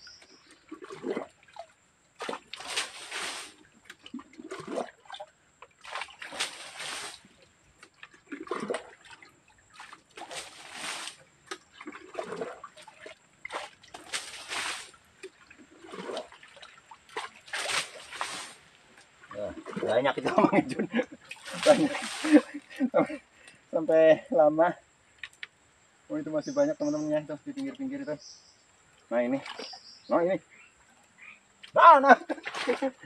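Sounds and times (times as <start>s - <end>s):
water splashing: 0.0s - 23.2s, 29.0s - 30.2s, 31.6s - 33.0s
bucket scooping water slosh: 0.4s - 20.5s, 21.2s - 22.8s, 29.3s - 29.8s, 32.2s - 33.0s.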